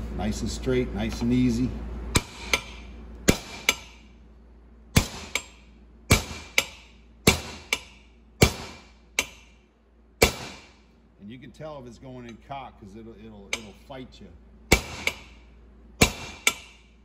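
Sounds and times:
hammer striking metal: 2.2s - 4.1s, 5.0s - 9.6s, 10.2s - 10.8s, 13.5s - 13.8s, 14.7s - 15.4s, 16.0s - 16.9s.

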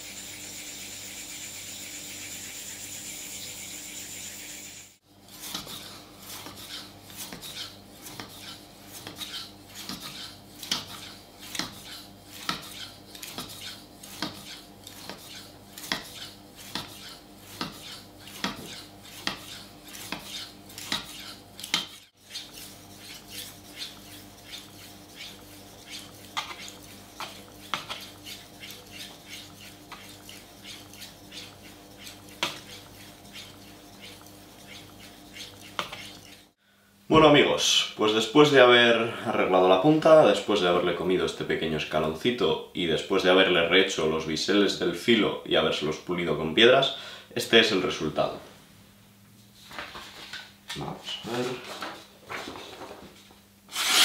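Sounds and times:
knife scraping on whetstone: 0.1s - 36.6s, 53.7s - 54.0s.

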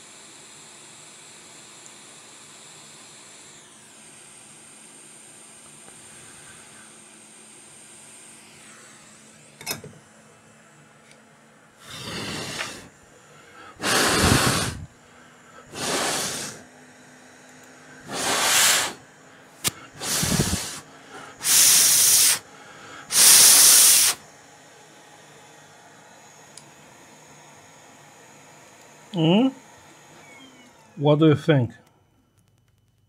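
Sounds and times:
short hissing blasts: 11.8s - 12.9s, 13.6s - 14.9s, 15.7s - 16.7s, 18.0s - 24.2s.

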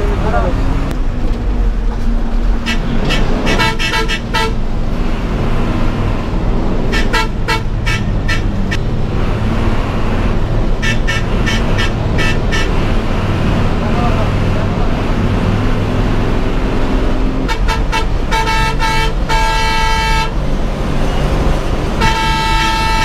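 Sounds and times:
bus engine drone: 0.0s - 23.0s
bus horn toots: 2.6s - 4.7s, 6.9s - 8.8s, 10.8s - 13.0s, 17.4s - 20.4s, 21.1s - 23.0s.

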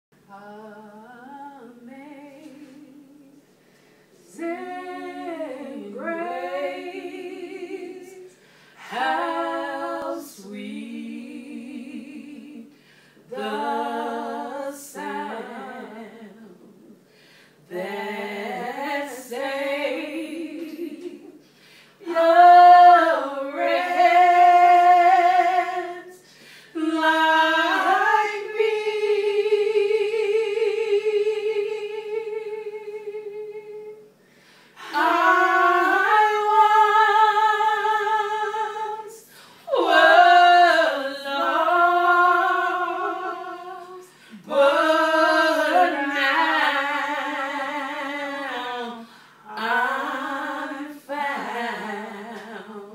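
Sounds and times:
women singing a cappella: 0.2s - 52.9s.

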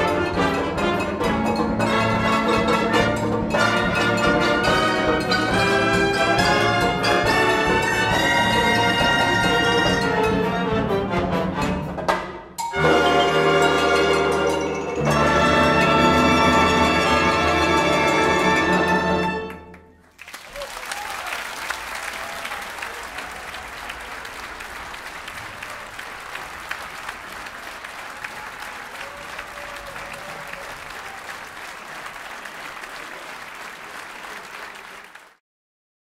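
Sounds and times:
audience applauding: 19.5s - 35.4s.

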